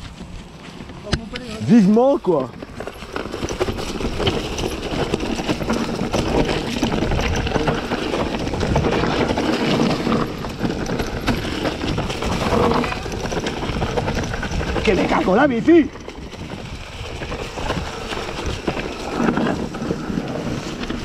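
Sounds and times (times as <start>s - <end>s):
bike rattling: 0.0s - 21.0s
tyres crunching on stones: 0.0s - 21.0s.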